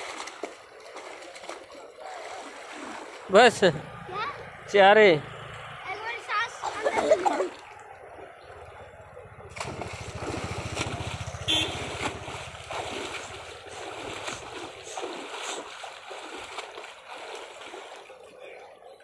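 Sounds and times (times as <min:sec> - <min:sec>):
swimmer splashing in water: 0:00.0 - 0:04.6, 0:05.3 - 0:18.6
low fast throbbing rumble: 0:07.9 - 0:14.7.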